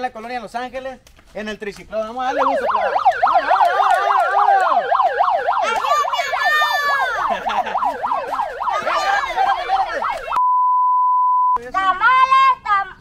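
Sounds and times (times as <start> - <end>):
electronic siren yelping: 2.3 - 10.4.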